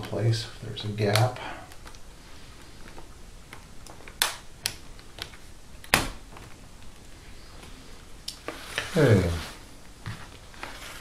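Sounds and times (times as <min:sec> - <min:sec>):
plastic clips snapping into place: 0:01.1 - 0:02.0.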